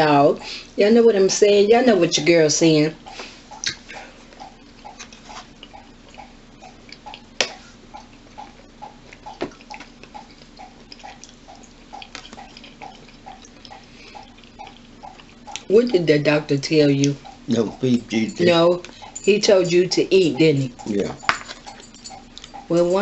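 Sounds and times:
low pulsing hum: 0.0 - 23.0
spoon clinking against glass: 17.7 - 22.5.

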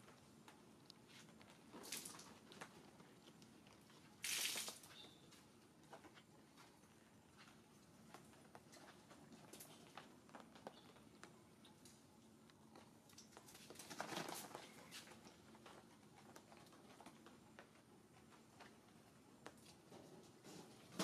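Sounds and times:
faint ticks and clicks: 4.9 - 20.6.

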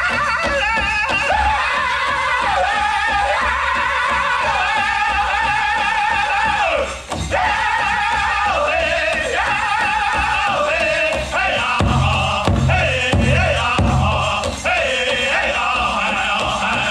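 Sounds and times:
big drum beating: 0.0 - 16.9
voices singing in unison: 0.0 - 16.9.

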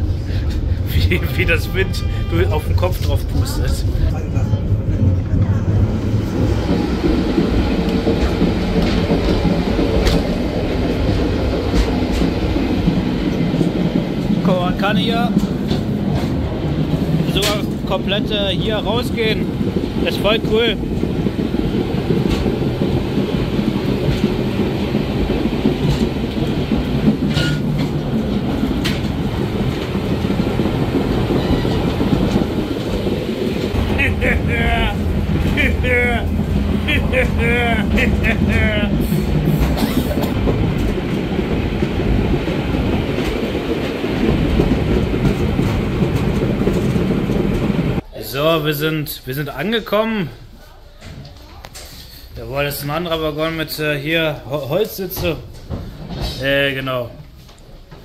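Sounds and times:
train carriage rumble and rattle: 0.0 - 58.0
wheels clicking over rail joints: 4.6 - 48.0, 54.7 - 58.0.

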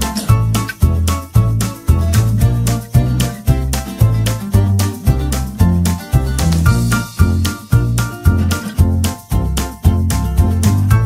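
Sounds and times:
bass line: 0.0 - 11.0
instrumental music with beat: 0.0 - 11.0.

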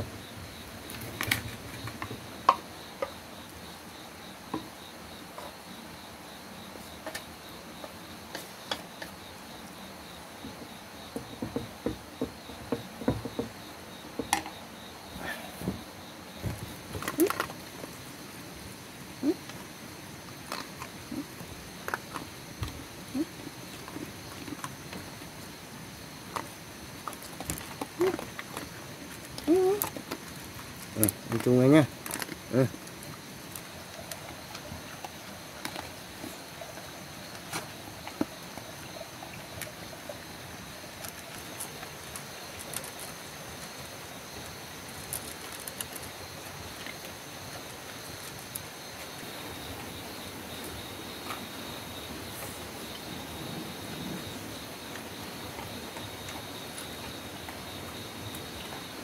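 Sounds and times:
dogs crunching kibble: 26.3 - 36.0, 41.0 - 49.1.

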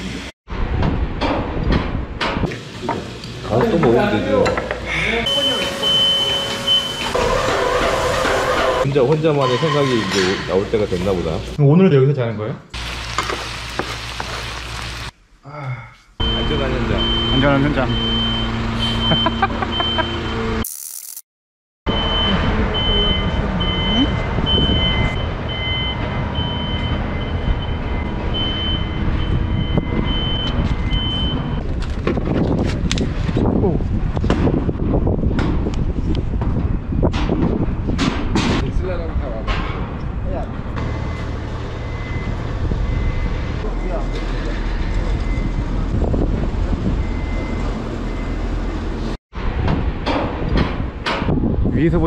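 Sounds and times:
reversing alarm beeping: 5.3 - 8.8, 16.2 - 20.6, 21.9 - 31.6, 40.8 - 45.9, 46.8 - 48.7
wind buffeting microphone: 28.9 - 40.3, 45.0 - 47.4, 49.4 - 52.0.

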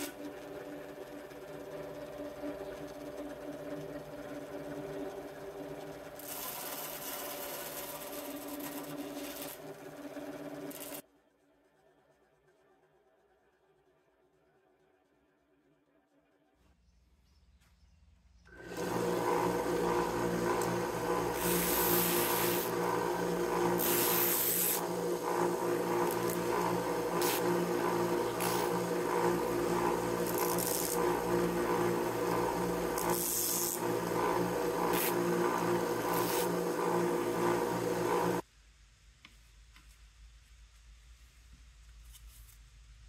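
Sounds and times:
belt sander motor hum: 0.0 - 11.0, 18.5 - 38.4.

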